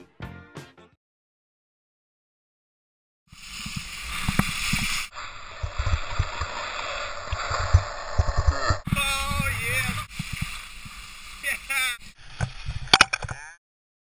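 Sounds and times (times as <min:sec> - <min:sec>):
skis sliding over slushy snow: 0:03.3 - 0:12.9.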